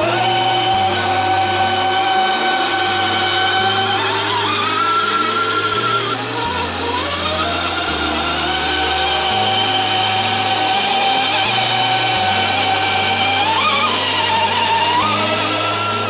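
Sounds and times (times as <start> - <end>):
background music with slow bass: 0.0 - 16.0
toy truck electric motor whining: 0.0 - 16.0.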